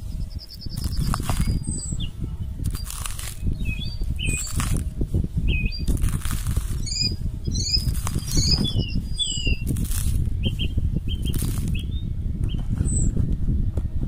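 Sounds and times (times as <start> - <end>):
small birds chirping: 0.0 - 13.2
wind buffeting microphone: 0.0 - 14.0.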